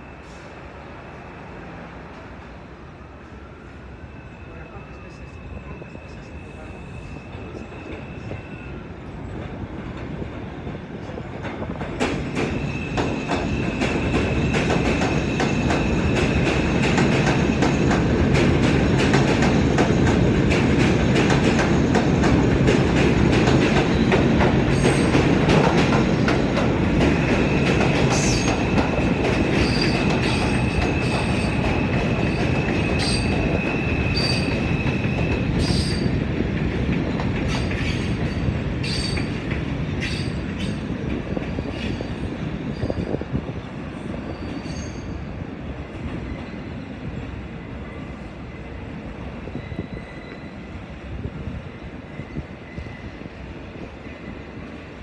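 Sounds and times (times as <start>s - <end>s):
subway train rumbling: 0.0s - 55.0s
high wheel squeal: 4.0s - 9.0s, 27.2s - 36.1s, 44.2s - 45.3s, 49.5s - 50.8s.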